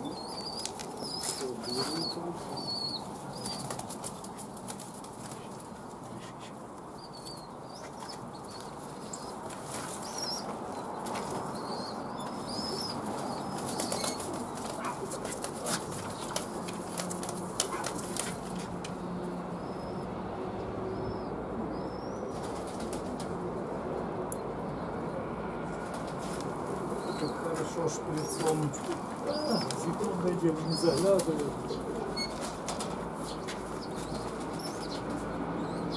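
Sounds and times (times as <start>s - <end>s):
pigeon wings flapping: 3.4s - 5.4s, 13.5s - 18.5s.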